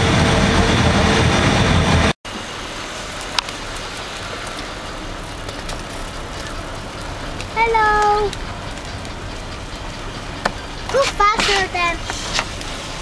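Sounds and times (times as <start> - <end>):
loud low rumble: 0.0 - 7.3
vehicle hum: 0.0 - 13.0.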